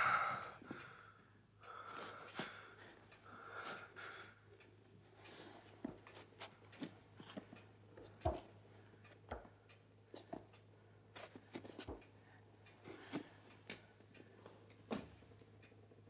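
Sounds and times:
low steady hum: 0.0 - 16.0
faint knocks and clicks: 4.6 - 16.0.

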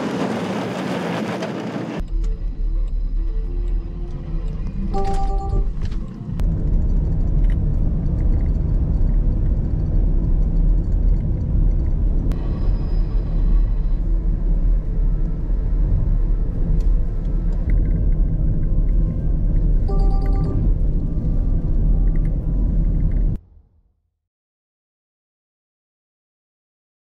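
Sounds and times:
low rumble: 0.1 - 23.9
faint high tones: 19.8 - 22.4.

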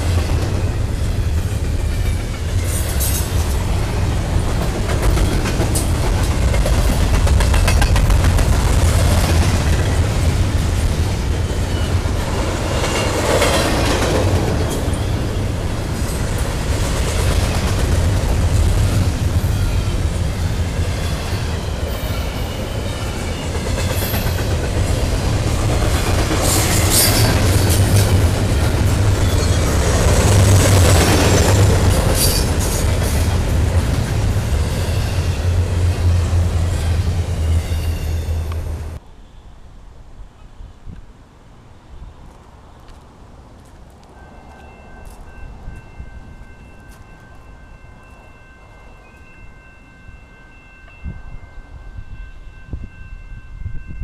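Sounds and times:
train wheels rumbling on rails: 0.0 - 39.0
high-pitched wheel squeals: 36.8 - 38.7.

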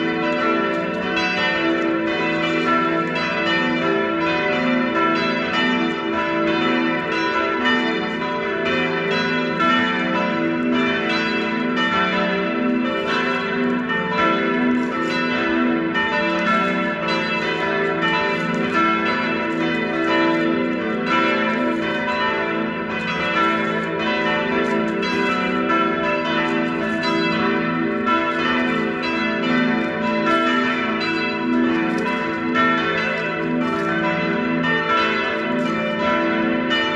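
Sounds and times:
church bells ringing: 0.0 - 36.9.

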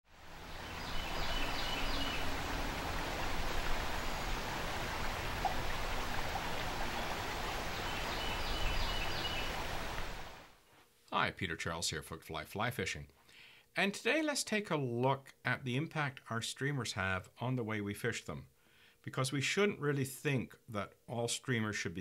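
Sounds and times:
river current rushing: 0.1 - 10.6.

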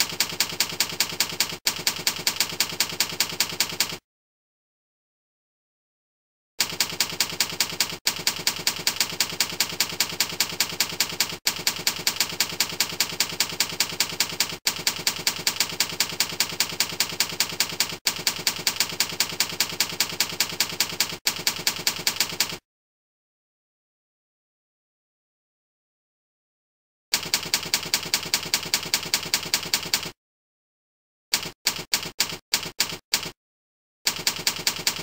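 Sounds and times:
typewriter key clacks: 0.0 - 4.0, 27.2 - 30.2, 31.3 - 33.4.

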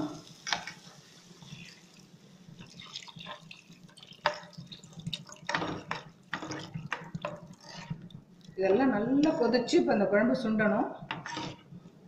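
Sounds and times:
liquid pouring and splashing into pan: 0.3 - 8.6.

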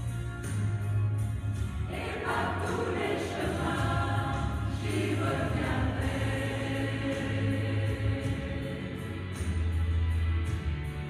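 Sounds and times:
mixed choir singing: 1.9 - 9.5.

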